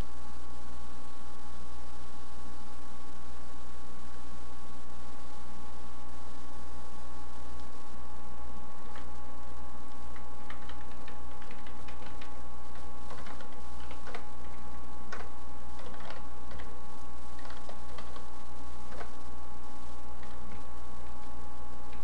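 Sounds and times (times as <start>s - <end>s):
electrical hum: 0.0s - 22.0s
faint high whine: 0.0s - 22.0s
keyboard typing: 10.0s - 16.8s, 17.4s - 19.2s, 20.2s - 21.2s.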